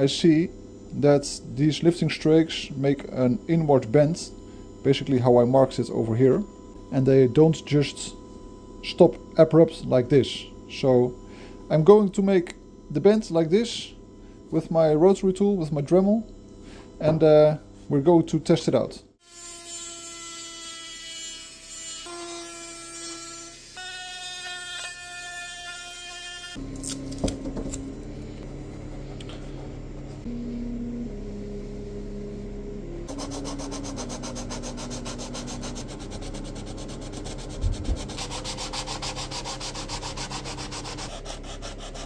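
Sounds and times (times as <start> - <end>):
sanding block rubbing on wood: 33.1 - 42.0.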